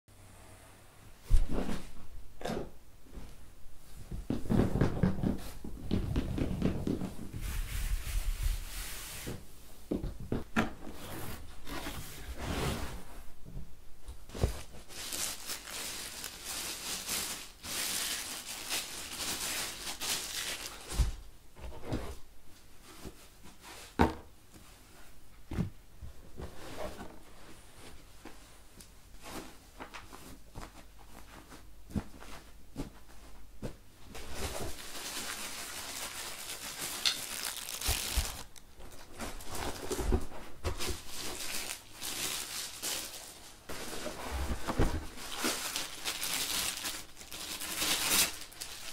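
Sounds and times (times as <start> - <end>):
plastic wrapping rustling: 14.3 - 21.2, 29.2 - 48.9.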